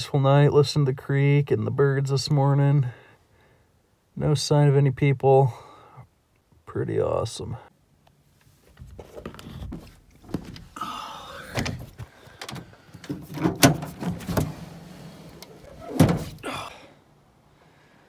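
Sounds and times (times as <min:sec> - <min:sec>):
door opening: 0:11.4 - 0:16.5.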